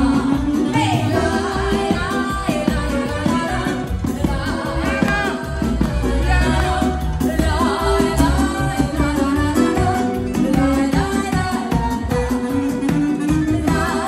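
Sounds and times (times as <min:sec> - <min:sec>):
accordion: 0:00.0 - 0:14.0
heavy amplified bass: 0:00.0 - 0:14.0
saxophone: 0:00.0 - 0:14.0
woman singing into microphone: 0:00.0 - 0:14.0.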